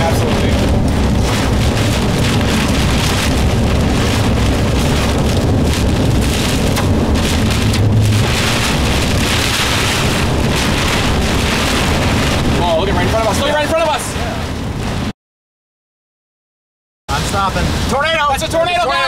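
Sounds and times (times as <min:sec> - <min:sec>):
heavy rain on car roof: 0:00.0 - 0:15.1, 0:17.1 - 0:19.0
low rumble of wind: 0:00.0 - 0:15.1
road noise: 0:00.0 - 0:15.1.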